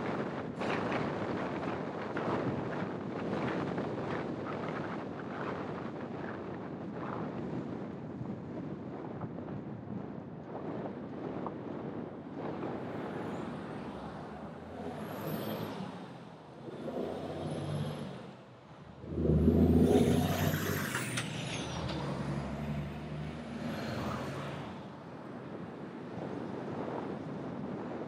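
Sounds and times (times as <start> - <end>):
road traffic: 12.6 - 26.2
vehicle engine revving: 14.5 - 24.6.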